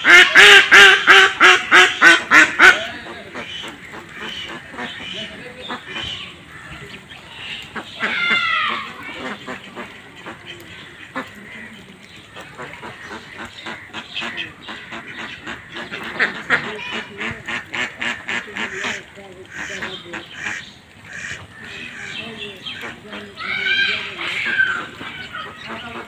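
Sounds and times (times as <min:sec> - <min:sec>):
ducks quacking: 0:00.0 - 0:26.0.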